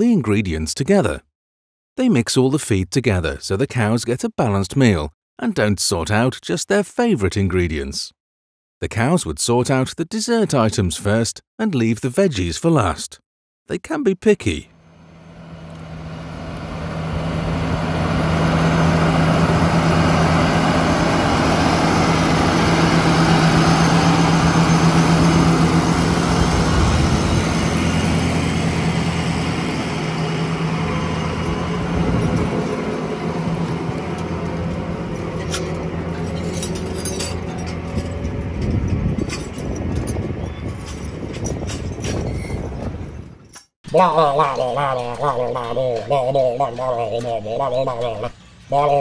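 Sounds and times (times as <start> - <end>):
tractor diesel engine running: 14.7 - 43.2, 43.9 - 49.0.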